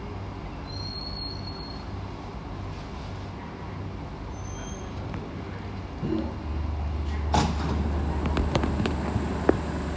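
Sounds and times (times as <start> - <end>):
train low hum: 0.0 - 9.9
train doors closing: 7.0 - 9.9.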